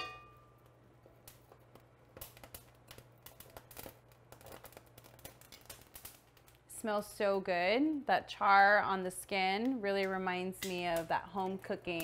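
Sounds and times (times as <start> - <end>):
low steady hum: 0.0 - 4.8
pepper skins crackling over flame: 0.2 - 12.0.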